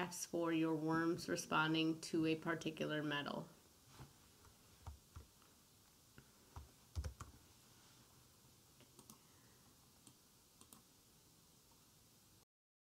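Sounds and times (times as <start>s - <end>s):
computer mouse clicks: 8.8s - 9.2s, 10.0s - 10.8s.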